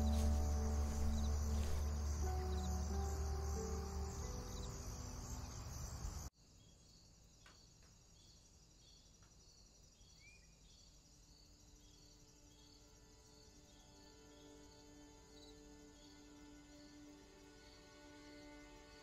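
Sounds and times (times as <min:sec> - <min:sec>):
background music: 0:00.0 - 0:06.0, 0:12.2 - 0:19.0
insects chirping: 0:00.0 - 0:19.0.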